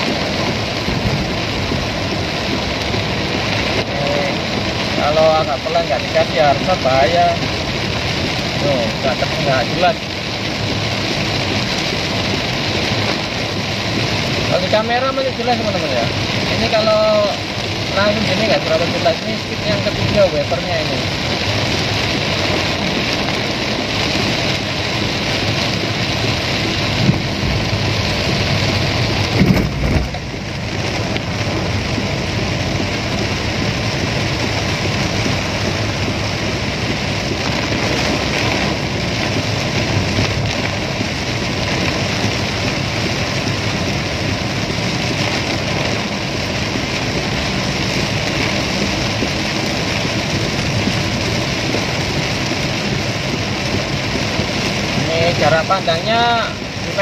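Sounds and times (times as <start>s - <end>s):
heavy rain on car roof: 0.0s - 57.0s
short thumps: 29.3s - 30.4s.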